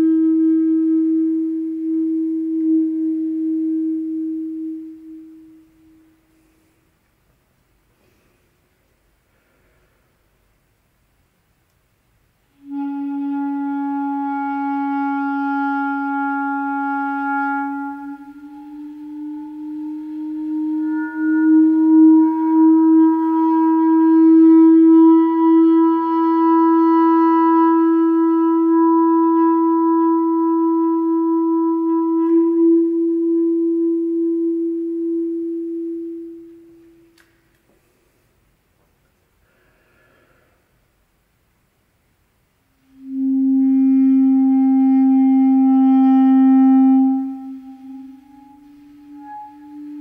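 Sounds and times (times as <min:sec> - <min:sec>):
clarinet low note: 0:00.0 - 0:06.7, 0:12.5 - 0:37.6, 0:42.8 - 0:50.0
higher clarinet tone: 0:00.0 - 0:06.8, 0:12.5 - 0:37.7, 0:42.8 - 0:50.0.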